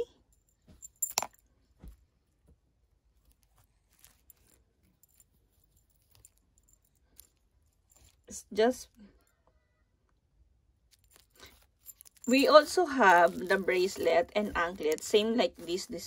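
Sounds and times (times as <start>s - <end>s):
metal chain clinking: 0.0s - 1.5s, 3.2s - 8.4s, 10.9s - 16.0s.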